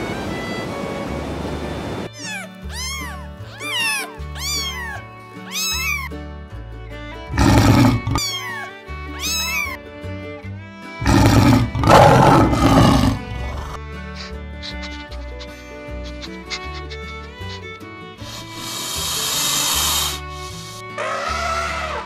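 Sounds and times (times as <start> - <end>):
kitten mewing: 2.1 - 6.1, 7.3 - 9.8, 11.0 - 20.2
background music with bass notes: 2.5 - 19.3
lion calling: 7.3 - 9.8, 11.0 - 17.8, 21.0 - 22.0.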